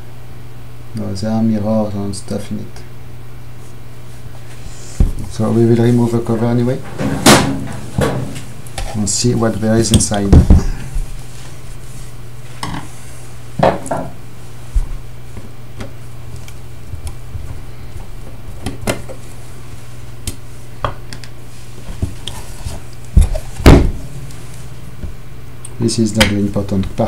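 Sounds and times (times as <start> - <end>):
low hum: 23.1 - 25.9.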